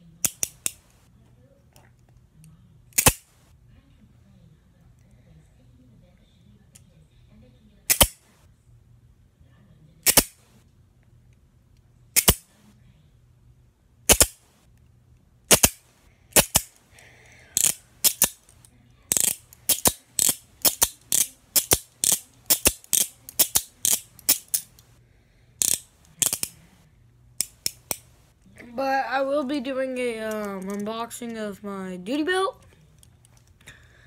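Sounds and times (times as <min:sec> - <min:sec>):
handcuffs ratcheting clicks: 0:00.2 - 0:00.9, 0:17.6 - 0:24.9, 0:25.6 - 0:26.6, 0:27.4 - 0:28.1, 0:30.3 - 0:30.9.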